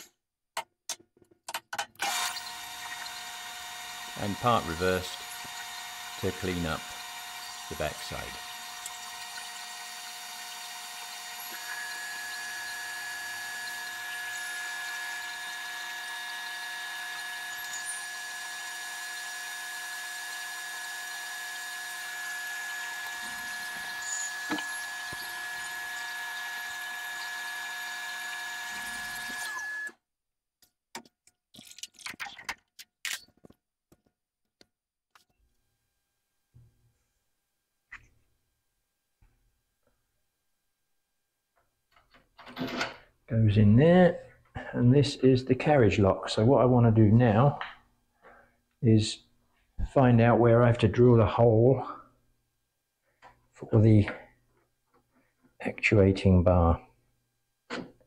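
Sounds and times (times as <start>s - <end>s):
metal lathe gear whine: 2.0s - 29.9s.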